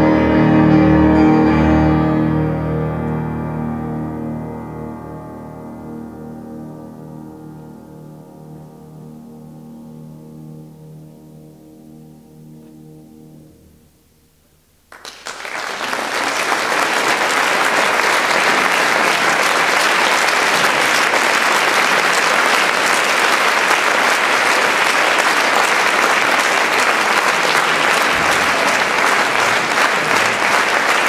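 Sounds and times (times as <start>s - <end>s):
piano chord: 0.0s - 14.3s
audience applause: 14.9s - 31.0s.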